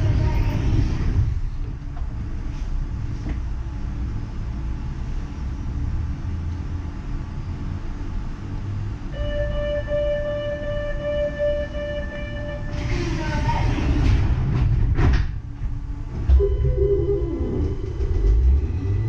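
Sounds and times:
light rail train rumbling: 0.0 - 19.0
steady pitched tone: 9.1 - 12.8, 16.3 - 19.0.

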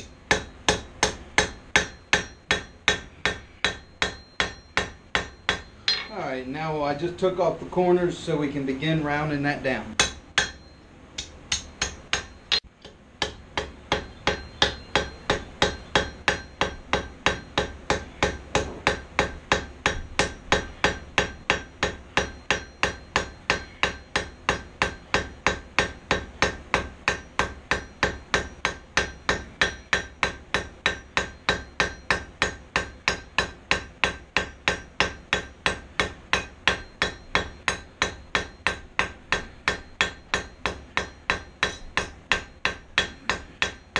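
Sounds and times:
hammer striking steel on anvil: 0.0 - 6.5, 10.0 - 43.9.

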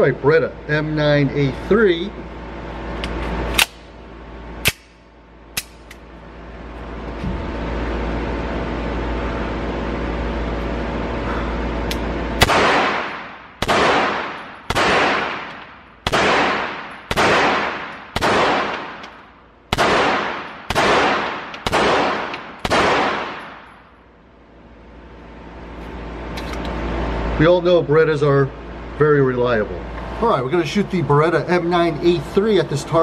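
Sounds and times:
steady low hum: 0.0 - 33.0
pistol shots echoing indoors: 12.4 - 19.1, 19.7 - 23.8.

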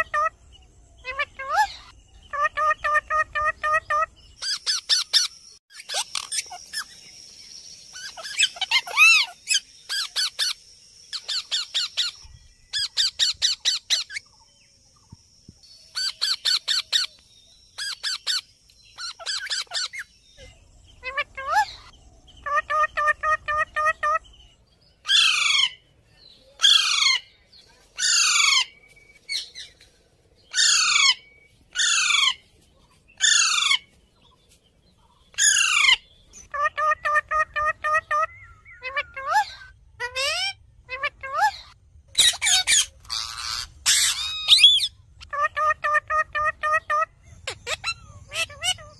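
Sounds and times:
parakeets screeching: 1.0 - 7.0, 7.9 - 14.3, 17.8 - 20.1, 21.0 - 24.3, 25.0 - 25.8, 26.6 - 27.3, 28.0 - 28.8, 30.5 - 32.5, 33.2 - 33.9, 35.3 - 48.9
shrill falling bird calls: 15.4 - 48.9.

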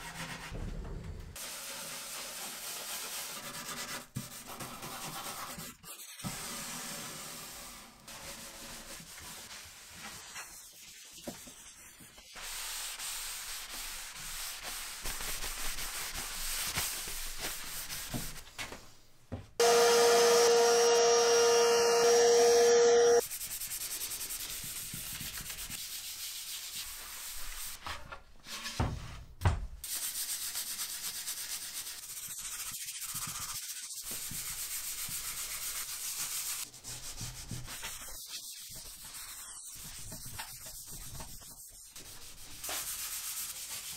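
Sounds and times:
power tool whining: 19.6 - 23.2.

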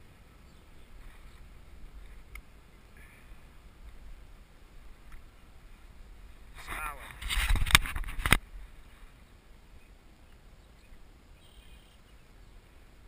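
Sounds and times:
faint bird chirp: 0.2 - 3.6, 8.7 - 13.0.

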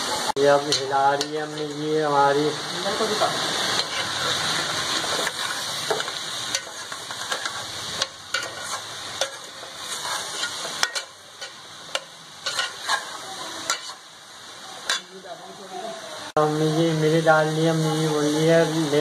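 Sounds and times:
vegetables sizzling in oil: 0.0 - 19.0
spatula scraping metal pot: 5.0 - 11.6, 12.4 - 14.0.

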